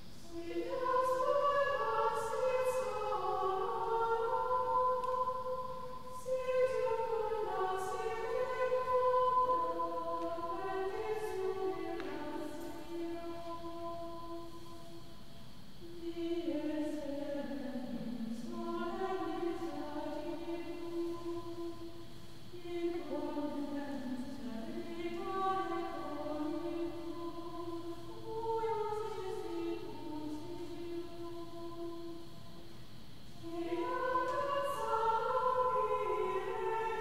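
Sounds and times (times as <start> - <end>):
choir singing a hymn: 0.0 - 37.0.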